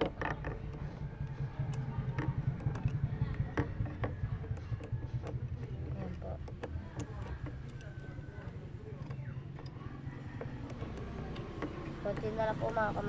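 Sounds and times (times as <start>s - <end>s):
socket wrench clicks and knocks: 0.0s - 9.8s
steady low hum: 0.0s - 13.0s.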